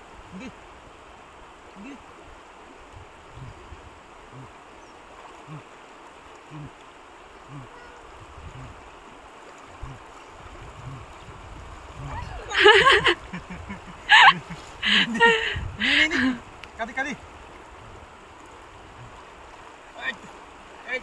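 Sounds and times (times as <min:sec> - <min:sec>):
shallow river water flowing: 0:00.0 - 0:21.0
wading steps splashing: 0:04.3 - 0:21.0.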